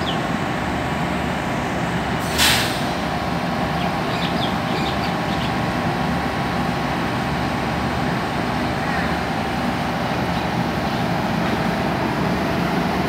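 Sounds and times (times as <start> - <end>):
diesel railcar engine idling: 0.0 - 13.0
short loud hiss: 2.2 - 3.0.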